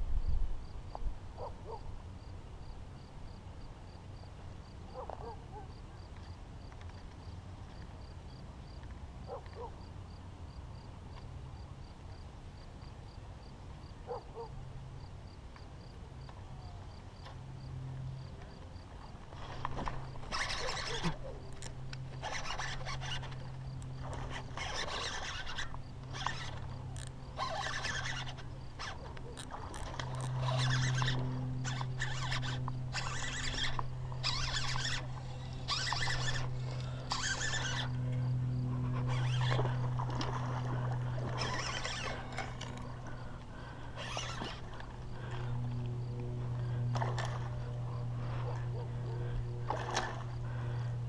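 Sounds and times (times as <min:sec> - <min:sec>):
low hum: 0:16.0 - 0:51.0
fishing reel whirring: 0:19.1 - 0:51.0.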